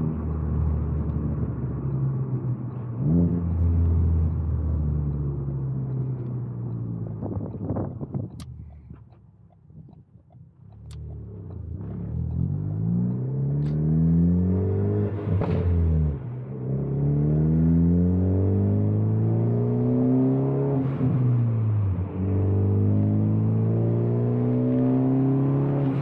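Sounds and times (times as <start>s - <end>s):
car engine accelerating: 0.0s - 26.0s.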